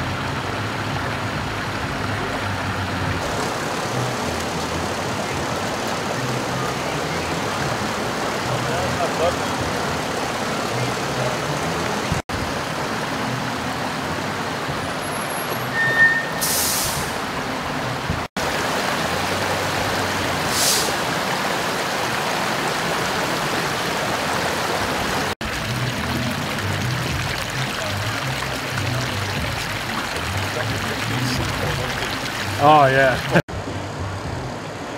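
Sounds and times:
floodwater rushing: 0:00.0 - 0:34.0
short hisses: 0:20.5 - 0:21.0
low engine rumble: 0:25.4 - 0:34.9.

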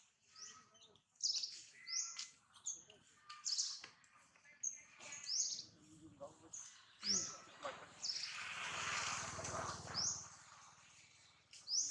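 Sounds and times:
small birds chirping: 0:00.0 - 0:11.9
fainter lower bird calls: 0:00.2 - 0:08.5.

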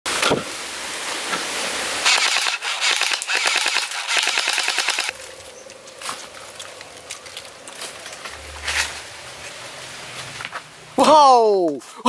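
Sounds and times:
steady hiss: 0:00.1 - 0:11.0
toy blaster automatic fire: 0:02.0 - 0:05.1.

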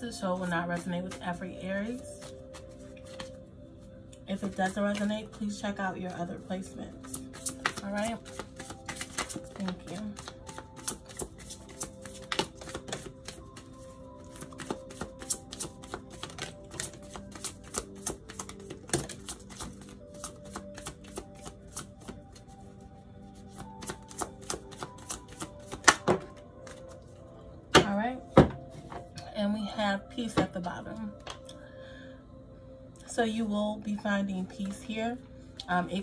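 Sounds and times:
soft background music: 0:00.0 - 0:36.0
cards being shuffled: 0:02.2 - 0:03.4, 0:07.0 - 0:22.4, 0:23.4 - 0:27.0.

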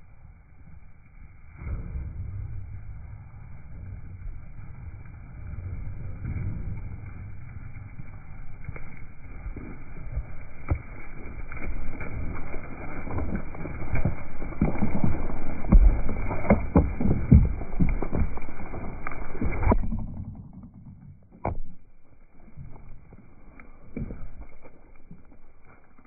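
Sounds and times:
sheep hooves trampling: 0:07.6 - 0:20.7, 0:21.4 - 0:26.0.

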